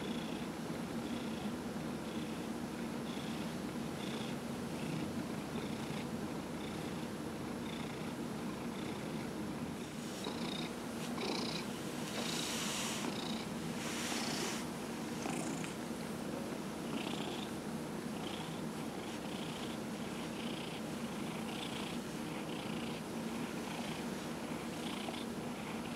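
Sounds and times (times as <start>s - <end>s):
cat purring: 7.6s - 15.8s, 16.8s - 17.6s, 18.2s - 25.9s.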